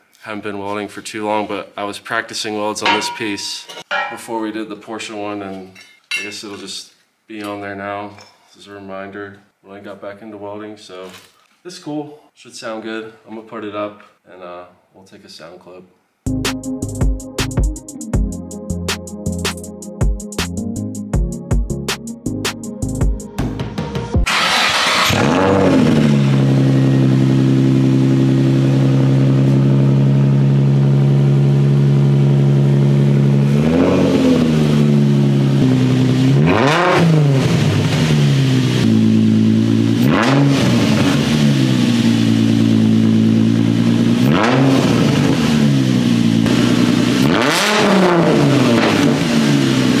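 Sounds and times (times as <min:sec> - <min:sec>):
car engine idling and revving: 0:24.2 - 0:50.0.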